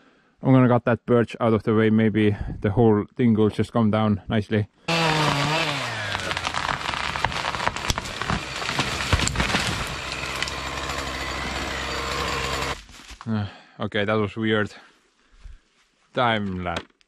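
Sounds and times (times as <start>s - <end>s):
chainsaw cutting wood: 4.9s - 12.9s
sharp wood cracks: 4.9s - 13.3s.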